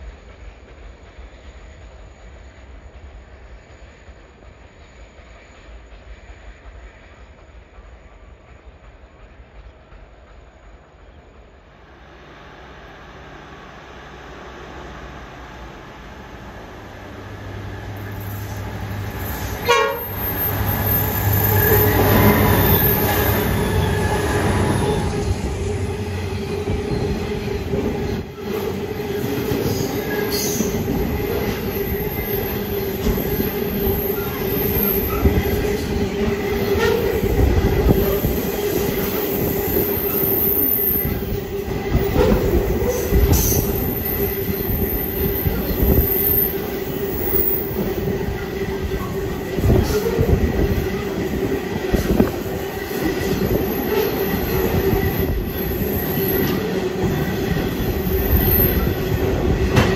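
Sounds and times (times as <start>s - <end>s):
diesel locomotive engine rumble: 0.0s - 59.9s
train wagons clattering over rails: 16.3s - 59.9s
wheel squeal: 31.4s - 35.8s, 53.2s - 59.1s.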